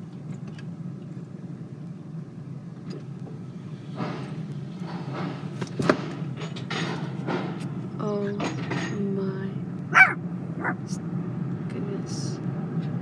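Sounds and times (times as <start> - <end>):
car cabin low hum: 9.9 - 11.0.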